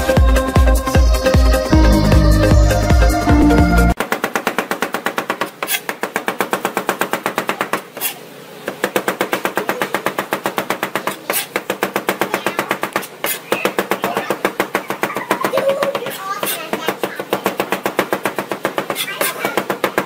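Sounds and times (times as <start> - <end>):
knife chopping on cutting board: 4.0 - 15.4, 16.0 - 20.0.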